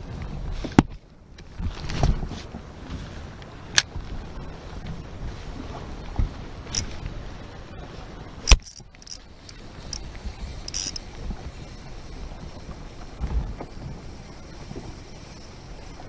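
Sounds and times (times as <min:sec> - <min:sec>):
wind and water noise: 0:00.0 - 0:16.0
fishing reel click: 0:08.4 - 0:11.2, 0:14.4 - 0:15.9
light metallic ticks: 0:08.5 - 0:11.2.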